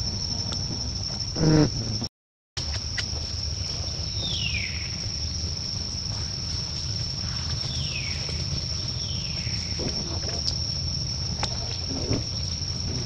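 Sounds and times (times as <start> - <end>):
high-pitched insect drone: 0.0 - 2.0
low steady rumble: 2.6 - 13.0.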